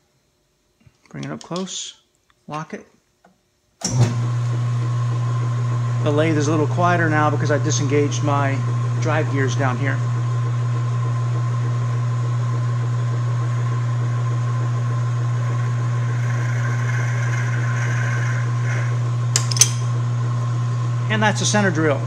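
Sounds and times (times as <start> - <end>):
metal lathe running: 4.1 - 10.6, 13.2 - 20.0.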